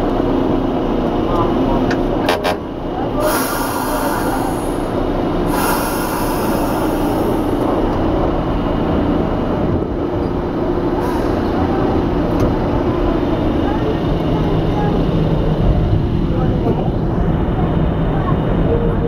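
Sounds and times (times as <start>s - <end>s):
subway wheels rumbling on rail: 0.0s - 19.0s.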